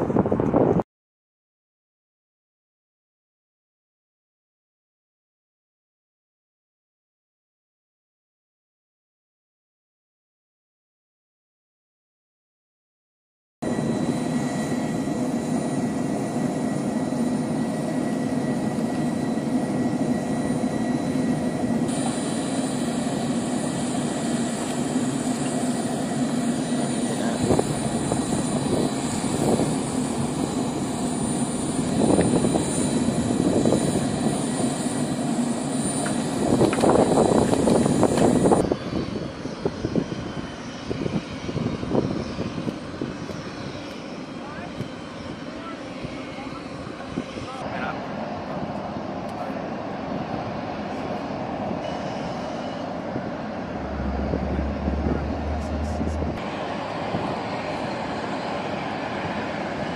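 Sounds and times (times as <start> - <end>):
jet turbine rumble and whine: 0.0 - 0.8, 13.6 - 59.9.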